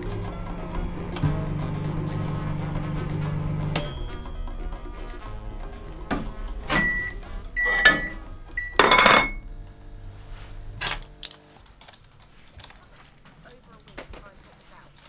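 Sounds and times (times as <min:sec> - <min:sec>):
low sustained music: 0:00.0 - 0:11.9
crockery knocking and clinking: 0:07.7 - 0:09.5.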